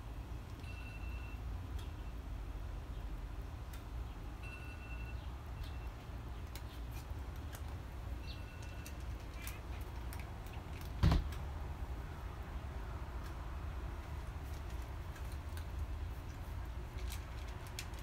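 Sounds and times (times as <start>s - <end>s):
cat crunching dry kibble: 8.8s - 11.0s, 13.2s - 18.0s.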